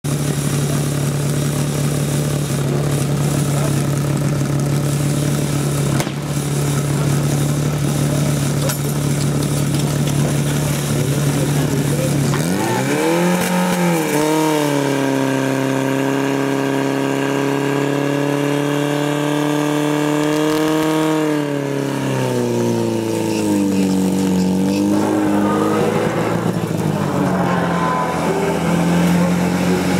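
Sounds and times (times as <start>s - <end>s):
pump engine running hard: 0.0s - 29.9s.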